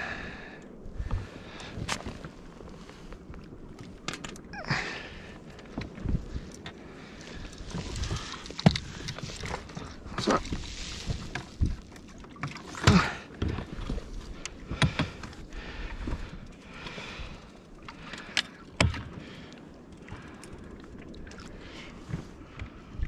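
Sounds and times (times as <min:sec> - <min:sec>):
fishing gear knocking and clattering: 0:03.8 - 0:04.5, 0:07.4 - 0:15.4.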